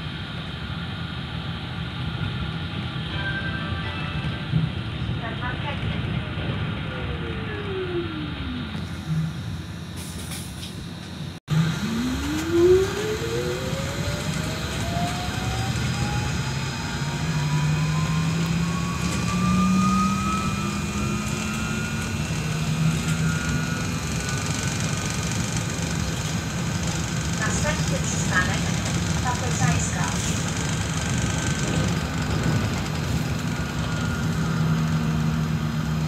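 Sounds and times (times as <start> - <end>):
road noise: 0.0 - 36.0
low hum: 11.3 - 24.4
electric drive whine: 11.5 - 24.7.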